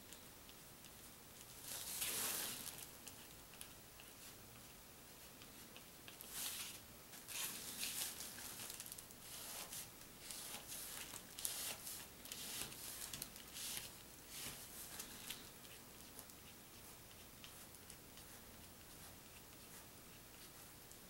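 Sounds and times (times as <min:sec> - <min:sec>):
marker scratching on paper: 0:09.2 - 0:20.8.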